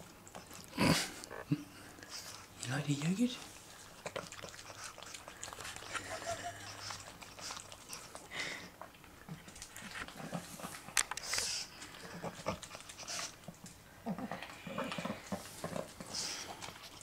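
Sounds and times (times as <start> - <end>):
dog licking and lip-smacking: 2.0 - 8.3, 8.9 - 13.8
dog breathing noisily: 14.3 - 17.0.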